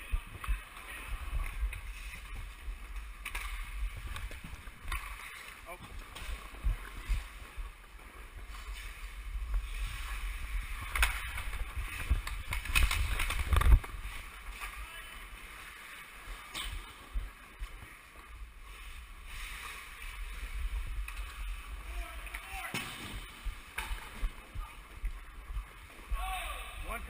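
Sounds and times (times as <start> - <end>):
skate blades scraping ice: 1.8 - 24.1
hockey sticks knocking: 3.0 - 7.0, 10.8 - 14.8, 22.2 - 24.4
wind rumble on microphone: 6.5 - 14.4
microphone handling noise: 8.4 - 14.3.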